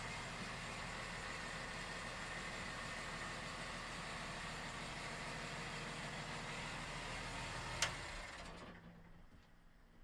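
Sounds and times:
diesel boat engine idling: 0.0s - 7.8s.

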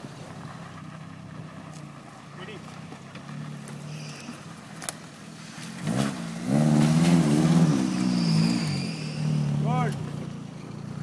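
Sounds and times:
car engine revving hard: 5.6s - 10.1s.

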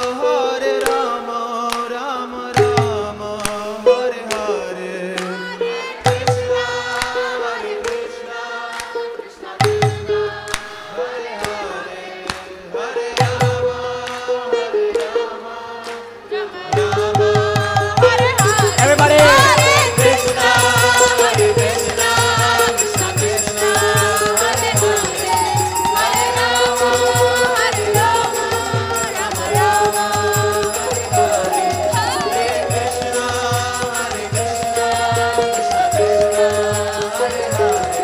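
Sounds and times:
harmonium: 0.0s - 38.0s
voices singing a devotional chant: 0.0s - 38.0s
crowd clapping in time: 5.1s - 9.2s, 10.4s - 16.2s
hand drum beat: 16.7s - 38.0s.

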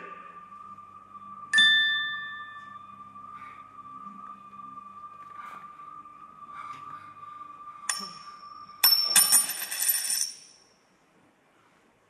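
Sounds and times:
high held tone: 1.2s - 3.2s
bell-like strike: 7.9s - 9.6s
shimmering metal crash: 7.9s - 10.6s.

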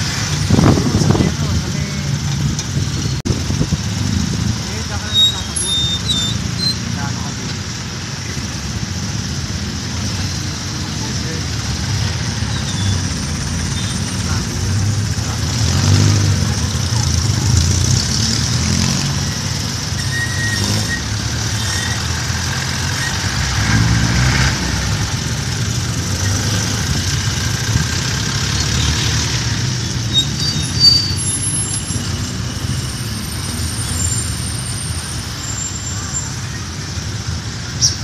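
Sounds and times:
traffic noise: 0.0s - 38.0s
high squeaks: 4.7s - 7.4s, 12.3s - 14.9s, 19.0s - 23.6s, 28.8s - 36.8s.

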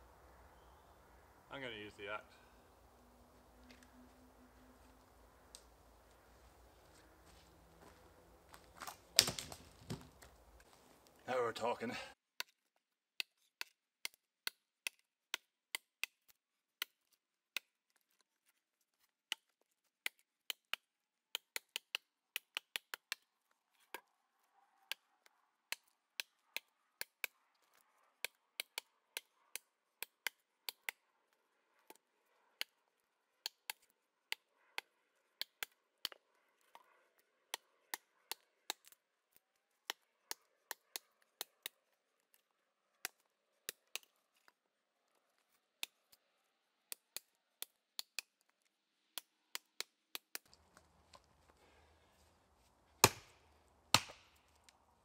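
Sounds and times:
axe chopping wood: 8.8s - 10.3s, 53.0s - 54.6s.

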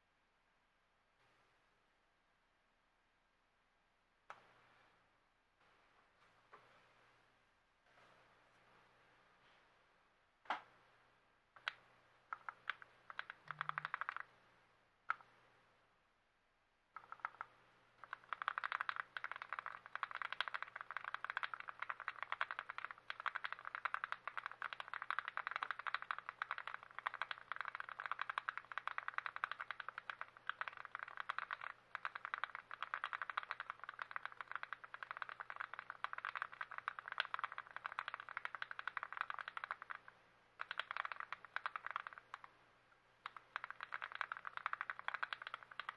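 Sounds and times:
mechanical keyboard typing: 11.6s - 14.3s, 17.0s - 42.5s, 43.2s - 45.9s.

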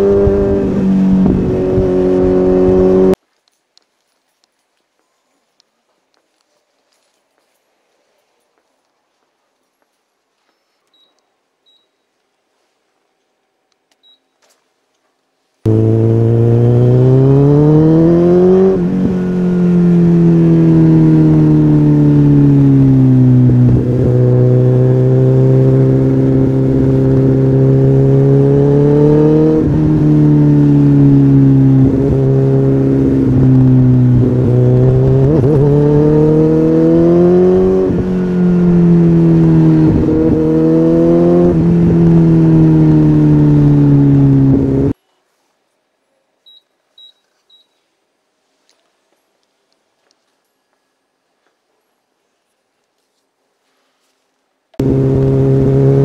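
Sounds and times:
motorcycle engine revving: 0.0s - 3.2s, 15.7s - 45.0s, 54.8s - 56.0s.

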